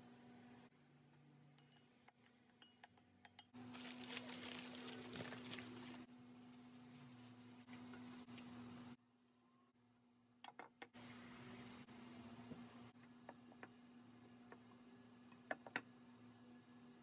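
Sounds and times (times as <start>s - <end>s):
plastic wrapping crinkling: 3.7s - 6.1s.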